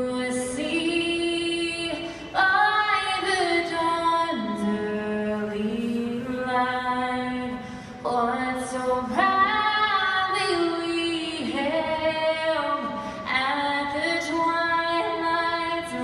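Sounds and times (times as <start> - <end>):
woman singing an anthem: 0.0 - 16.0.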